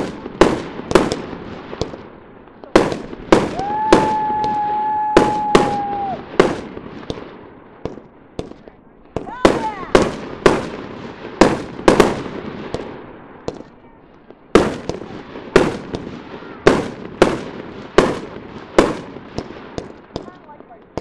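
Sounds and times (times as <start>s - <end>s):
firework shells bursting: 2.6s - 21.0s.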